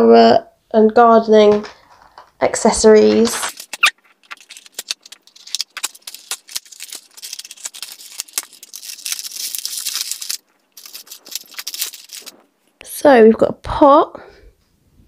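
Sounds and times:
plastic toys rattling: 3.0s - 12.5s
plastic packaging crackling: 3.0s - 12.8s.

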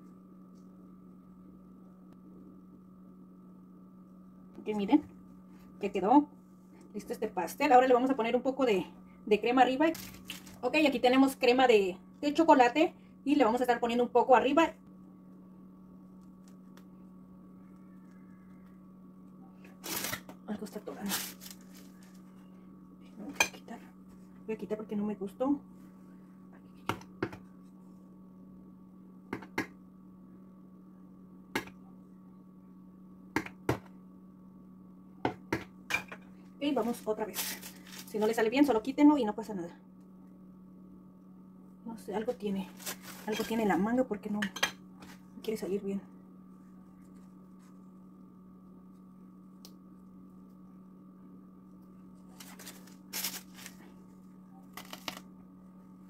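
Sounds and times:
steady low hum: 0.0s - 56.0s
plastic piping bag crinkling: 9.9s - 10.6s, 21.0s - 22.3s, 36.9s - 38.3s, 42.7s - 43.6s, 52.3s - 55.3s.

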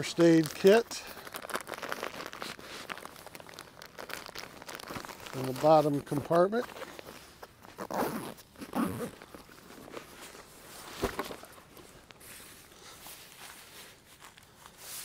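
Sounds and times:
backpack rustling: 0.2s - 15.0s.

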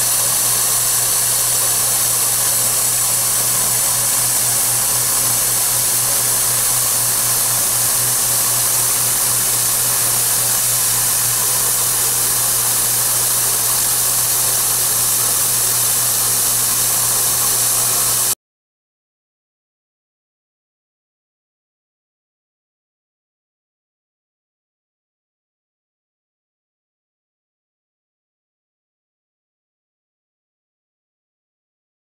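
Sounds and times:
milling machine cutting metal: 0.0s - 18.4s.

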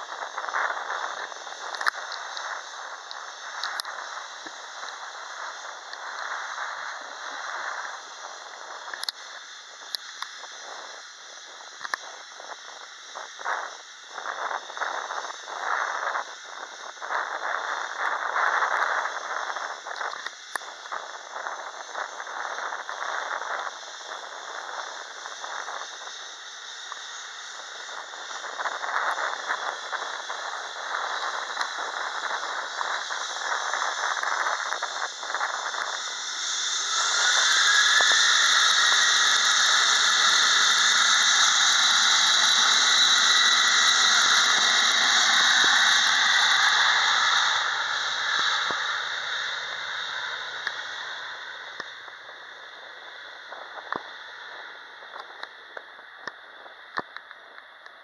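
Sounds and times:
jet engines spooling up with whine: 21.1s - 53.8s.

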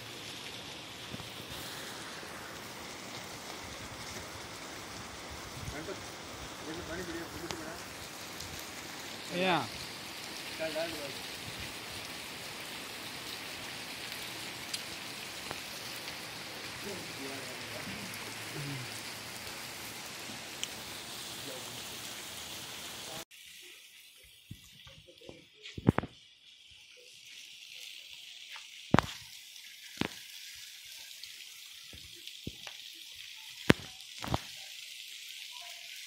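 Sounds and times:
heavy rain on pavement: 0.0s - 23.3s, 28.0s - 36.0s
raindrops tapping close by: 0.1s - 21.0s, 28.5s - 30.3s, 31.8s - 34.7s.

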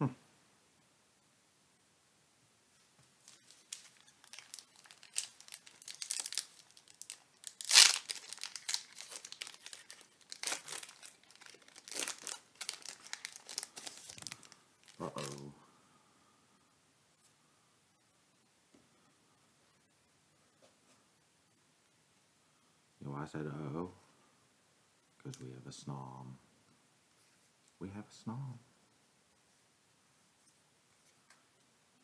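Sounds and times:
foil wrapper crinkling: 3.2s - 15.4s.

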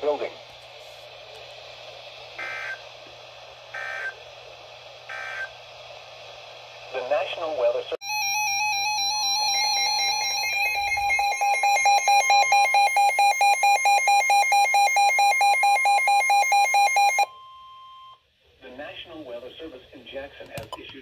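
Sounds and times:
pulsing electronic alarm beep: 5.1s - 5.5s, 8.0s - 18.2s
steady electronic tone: 5.1s - 5.6s, 8.0s - 17.0s.

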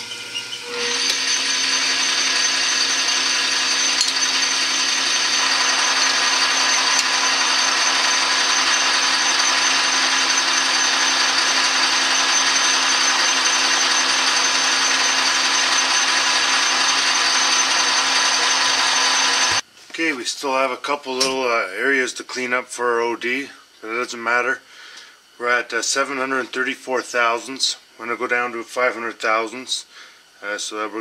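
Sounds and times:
drill cutting into metal bar: 0.0s - 19.6s
metal lathe whining: 0.0s - 19.6s.

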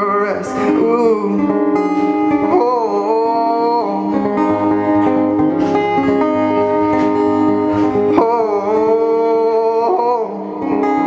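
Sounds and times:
man singing wordless ooh: 0.0s - 5.1s, 7.6s - 11.0s
acoustic guitar: 0.0s - 11.0s.

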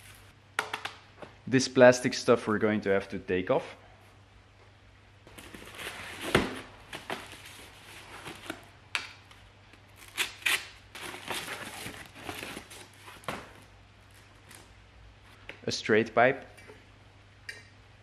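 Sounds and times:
cardboard and plastic wrap crinkling: 5.3s - 8.7s, 10.9s - 14.6s.

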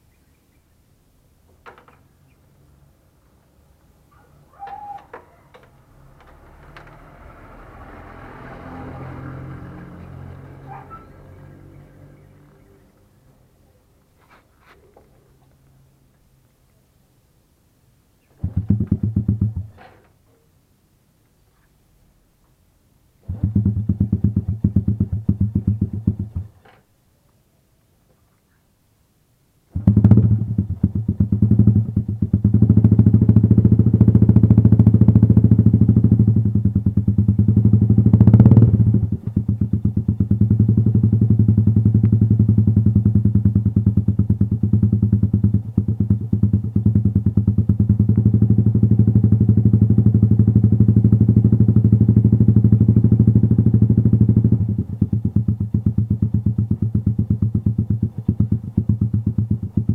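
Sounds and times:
motorcycle engine kick-started: 4.6s - 12.6s, 18.3s - 20.2s, 23.2s - 26.9s, 29.7s - 59.9s
motorcycle engine revving and idling: 4.7s - 13.3s, 18.2s - 20.1s, 23.2s - 26.8s, 29.7s - 59.9s.

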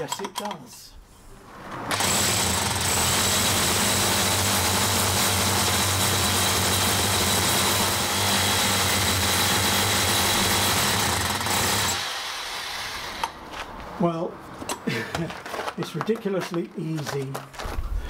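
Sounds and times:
hammer drill boring into concrete: 1.9s - 13.4s.

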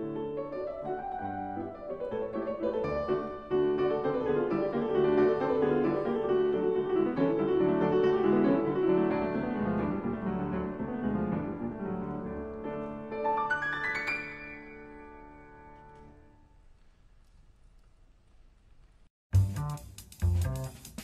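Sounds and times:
classical piano music: 0.0s - 16.7s.

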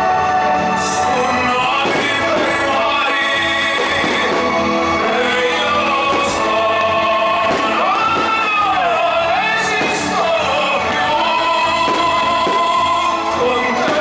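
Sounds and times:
music with choir-like singing: 0.0s - 14.0s
faint fireworks cracks: 1.7s - 5.0s, 6.0s - 6.6s, 7.4s - 9.0s, 9.7s - 10.6s, 11.7s - 14.0s.

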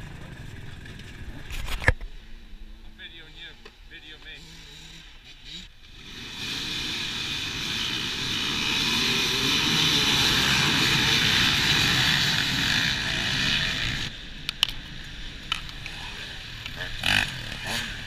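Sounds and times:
dirt bike engines accelerating: 0.0s - 1.6s, 2.3s - 18.0s
sharp clicks: 14.4s - 16.0s.

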